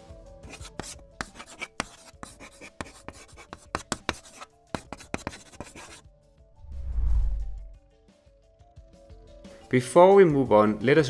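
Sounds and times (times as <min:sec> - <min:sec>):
faint background music: 0:00.0 - 0:11.0
chalk writing on blackboard: 0:00.4 - 0:06.1.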